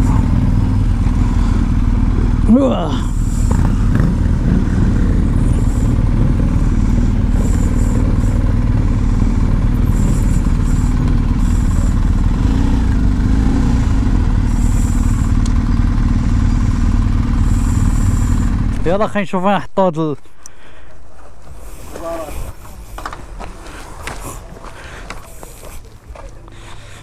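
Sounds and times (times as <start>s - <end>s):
motorcycle engine rumbling: 0.0s - 19.3s.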